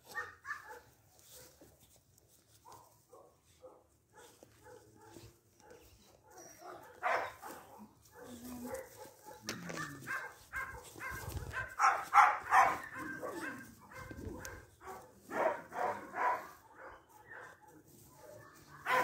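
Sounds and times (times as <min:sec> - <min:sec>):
puppies yipping: 0:04.7 - 0:19.0.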